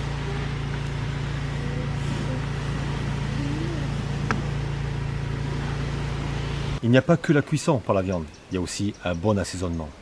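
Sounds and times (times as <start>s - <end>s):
low motor hum: 0.0s - 8.5s.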